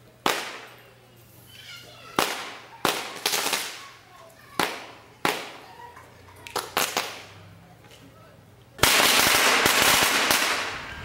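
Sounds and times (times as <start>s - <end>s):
firecracker cracks: 0.2s - 0.8s, 2.1s - 3.8s, 4.6s - 5.6s, 6.4s - 7.4s, 8.8s - 11.0s
dense firework crackle: 2.2s - 3.8s, 6.6s - 7.2s, 8.8s - 11.0s
firework bang: 8.8s - 10.9s.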